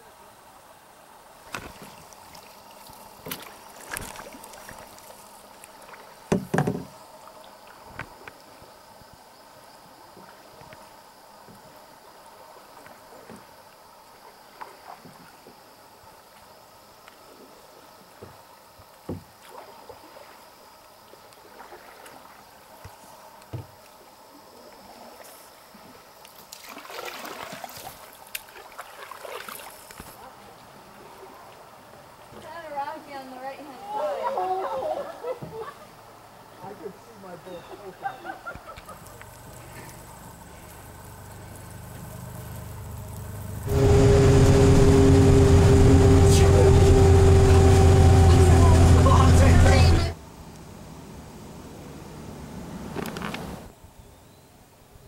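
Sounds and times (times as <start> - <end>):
paddle strokes through water: 1.4 - 9.0, 9.9 - 32.6, 38.6 - 50.2
knocks against canoe: 6.3 - 6.9.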